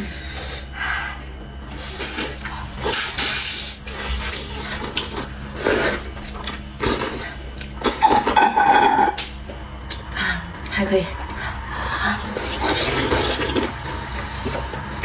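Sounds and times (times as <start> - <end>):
slurping soup: 12.4 - 15.0.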